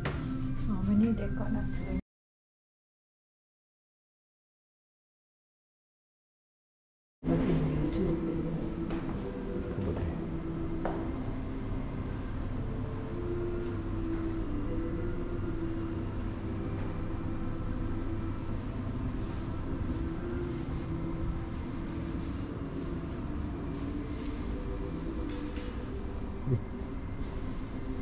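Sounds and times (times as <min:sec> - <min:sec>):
low room rumble: 0:07.2 - 0:28.0
faint wavering hum: 0:07.3 - 0:28.0.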